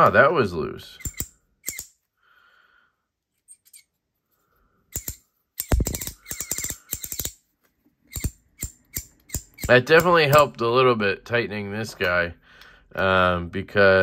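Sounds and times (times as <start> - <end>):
ratchet clicks: 1.0 - 1.9, 4.9 - 7.4, 8.1 - 10.1.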